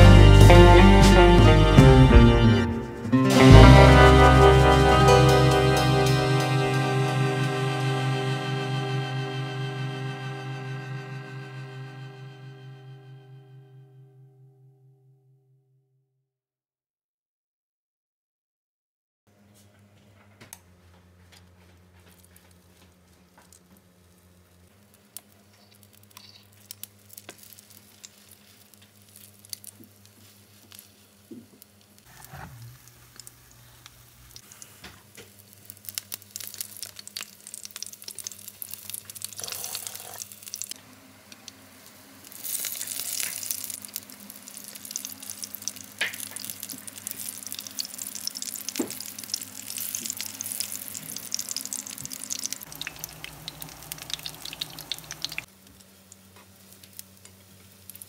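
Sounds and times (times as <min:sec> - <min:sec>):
patties sizzling in hot oil: 0:22.1 - 0:58.0
steady low hum: 0:46.9 - 0:55.5.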